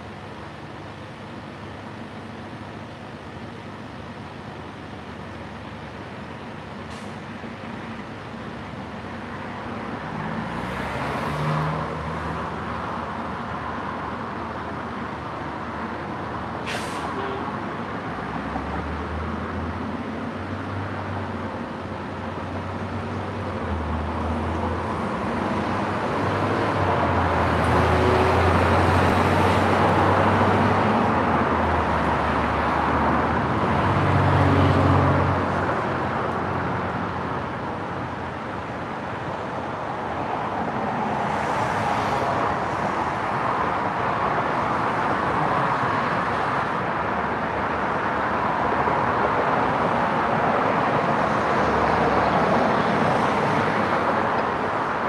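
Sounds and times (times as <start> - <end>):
heavy vehicle engine drone: 0.0 - 55.0
road traffic passing: 0.0 - 55.0
short sharp hiss: 16.6 - 17.2.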